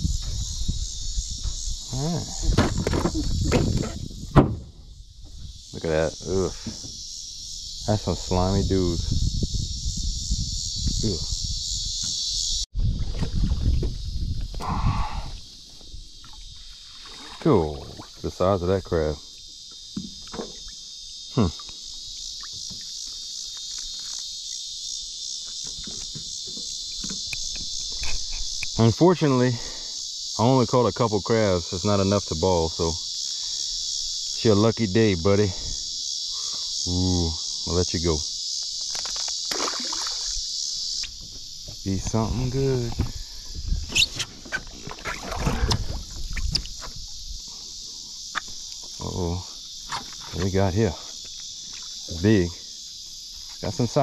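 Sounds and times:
insects shrill drone: 0:00.0 - 0:12.7, 0:13.5 - 0:54.0
knocks against boat hull: 0:02.5 - 0:04.7
water movement: 0:16.2 - 0:18.5, 0:39.0 - 0:40.4, 0:44.5 - 0:46.9.

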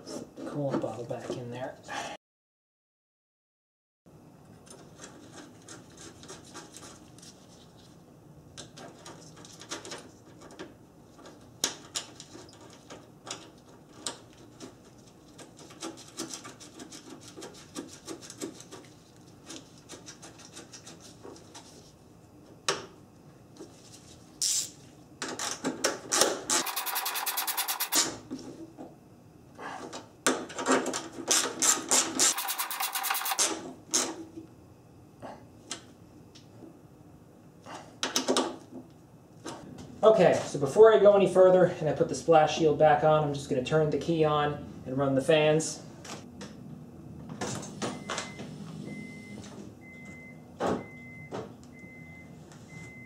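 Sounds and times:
hands rubbing and scraping plastic: 0:12.2 - 0:22.0, 0:26.6 - 0:28.0
rapid run of clicks: 0:26.6 - 0:28.0, 0:32.3 - 0:33.4.

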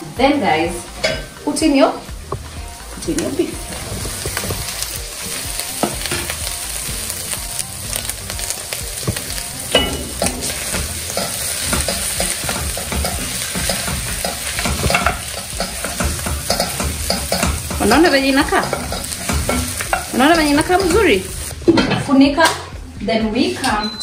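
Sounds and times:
meat sizzling in a pot: 0:00.0 - 0:21.7
wooden spatula scraping a pot: 0:03.7 - 0:04.9.

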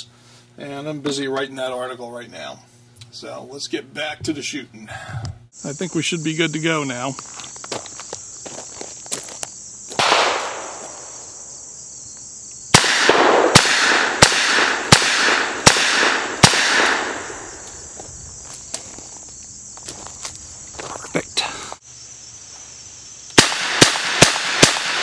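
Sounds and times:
revolver shots echoing: 0:10.0 - 0:10.9, 0:12.7 - 0:17.5.

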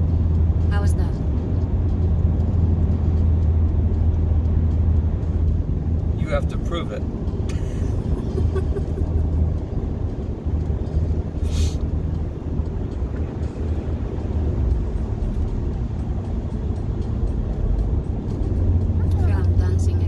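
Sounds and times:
car cabin road rumble: 0:00.0 - 0:20.0.

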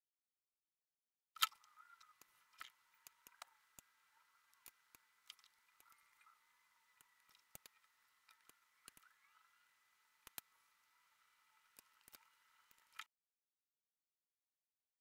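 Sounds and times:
faint steady hiss: 0:01.6 - 0:13.1.

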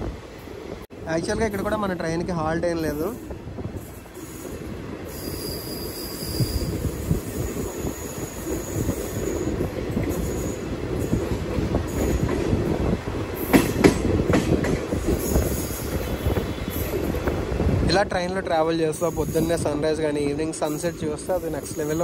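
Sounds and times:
train wheels rumbling on rails: 0:00.0 - 0:22.0
faint high squeal: 0:05.1 - 0:06.8.

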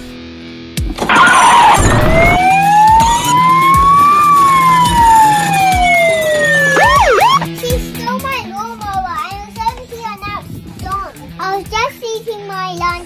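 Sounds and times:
police siren wailing: 0:01.0 - 0:07.5.

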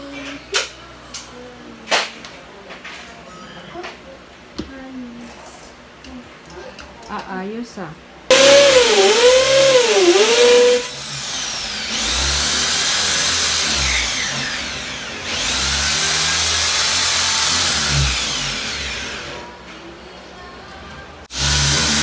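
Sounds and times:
electric drill boring into wood: 0:08.3 - 0:19.4, 0:21.3 - 0:22.0.

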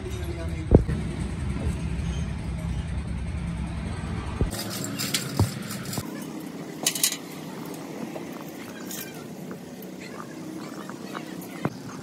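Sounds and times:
chain clinking against metal: 0:04.5 - 0:06.1.

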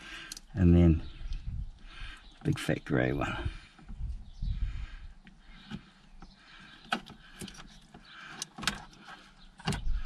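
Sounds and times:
wiring rustling: 0:05.2 - 0:10.0.

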